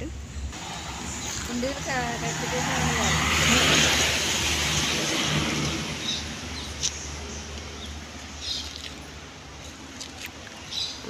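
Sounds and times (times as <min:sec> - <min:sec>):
vehicle passing by: 0:00.5 - 0:09.7.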